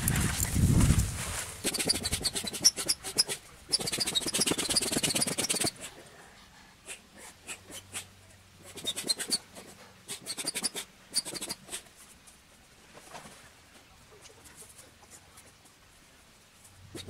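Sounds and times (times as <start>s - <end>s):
foot pump clicking and squeaking: 0.0s - 0.5s, 1.6s - 5.9s, 8.7s - 9.5s, 10.1s - 11.8s.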